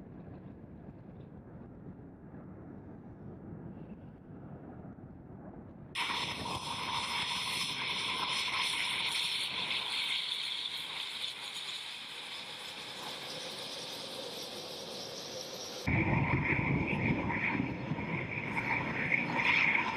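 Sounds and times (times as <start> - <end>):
jet engines whining: 6.0 - 19.9.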